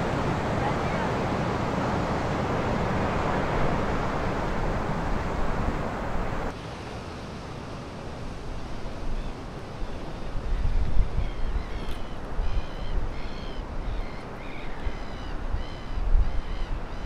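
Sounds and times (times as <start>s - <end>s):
surf: 0.0s - 11.2s.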